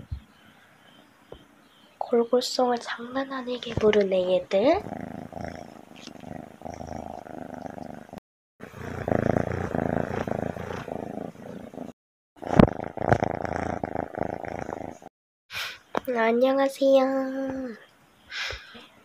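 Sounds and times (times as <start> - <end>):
cats purring: 3.4 - 15.1.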